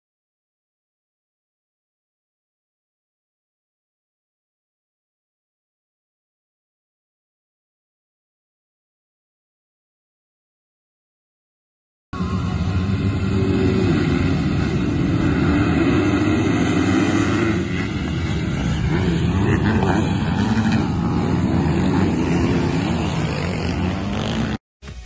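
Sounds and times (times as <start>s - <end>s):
motocross bikes revving: 12.2s - 24.6s.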